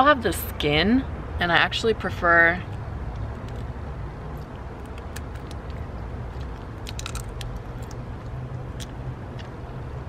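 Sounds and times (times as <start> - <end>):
bean husk cracking: 4.3 - 9.5.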